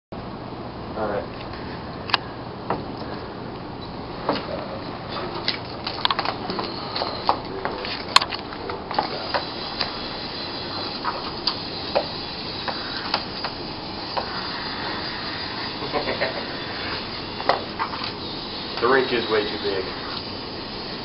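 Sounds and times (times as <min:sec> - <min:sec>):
mechanical whir of motors: 0:08.2 - 0:21.0.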